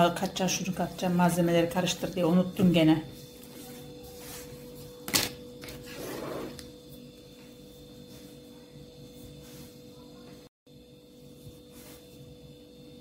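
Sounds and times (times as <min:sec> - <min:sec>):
soft rustle: 0:11.4 - 0:12.3.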